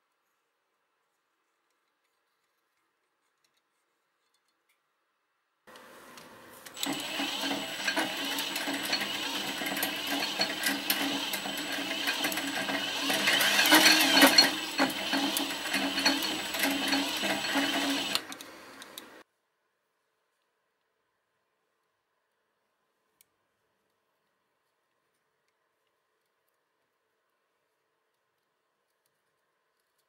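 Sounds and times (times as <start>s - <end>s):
cordless drill humming: 6.6s - 19.2s.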